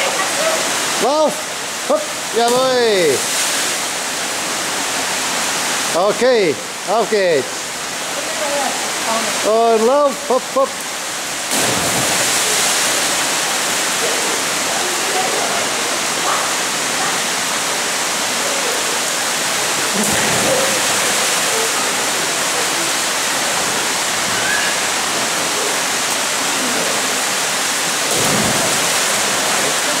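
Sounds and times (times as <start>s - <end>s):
stream rushing through gorge: 0.0s - 30.0s
people splashing into water: 11.5s - 13.2s, 19.9s - 21.7s, 28.0s - 30.0s.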